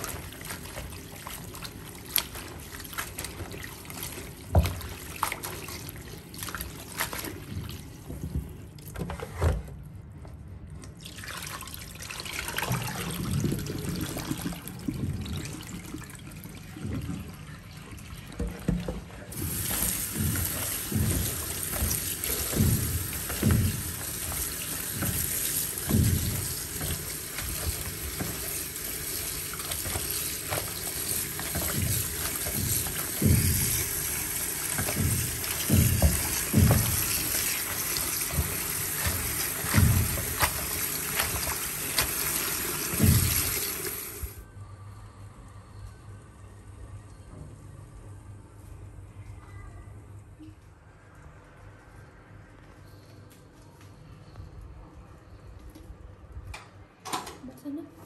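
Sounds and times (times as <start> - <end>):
greens swished and rinsed by hand: 0.0 - 8.9, 18.4 - 44.3
tap water running into basin: 0.0 - 9.0, 10.9 - 44.4.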